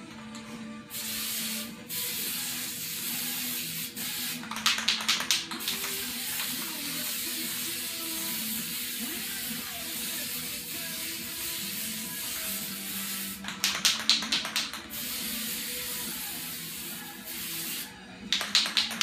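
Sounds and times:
aerosol spray can hissing: 0:00.9 - 0:19.0
sharp rattling clicks: 0:04.5 - 0:06.0, 0:13.5 - 0:14.8, 0:18.4 - 0:19.0.

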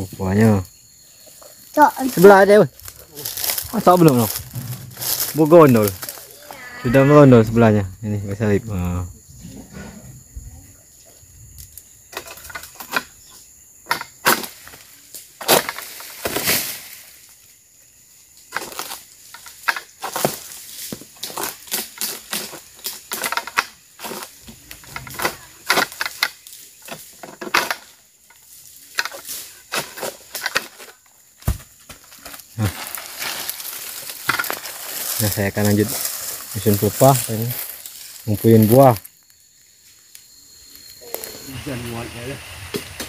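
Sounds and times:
palm fronds rustling: 0:01.1 - 0:07.8, 0:13.9 - 0:43.0
low thump: 0:04.3 - 0:05.4
sickle chopping and scraping: 0:28.9 - 0:33.0.

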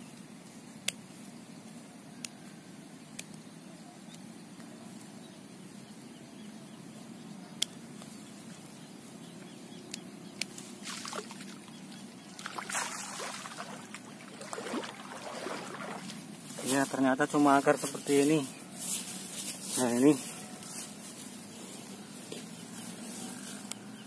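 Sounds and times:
footsteps splashing in water: 0:10.8 - 0:16.9
ditch water running: 0:10.8 - 0:18.0.

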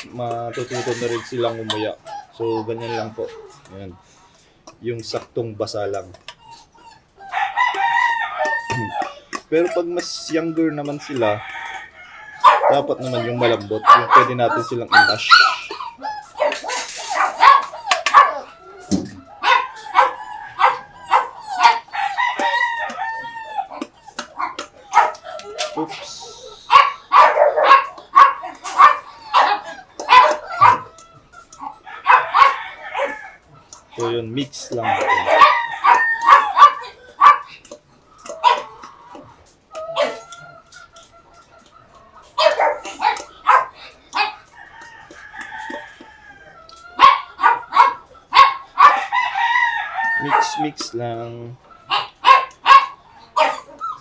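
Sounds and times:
dogs barking: 0:00.0 - 0:03.8, 0:12.4 - 0:54.0
puppies yipping and whining: 0:00.0 - 0:54.0
rooster crowing: 0:00.6 - 0:02.0, 0:07.2 - 0:09.2, 0:10.2 - 0:14.6, 0:17.1 - 0:23.8, 0:31.8 - 0:33.4, 0:34.8 - 0:37.4, 0:43.5 - 0:47.9, 0:48.8 - 0:50.8.

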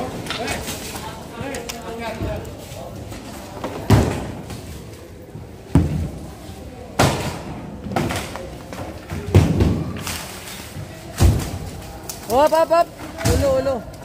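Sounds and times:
heavy thuds and bangs of panels: 0:09.1 - 0:10.1.

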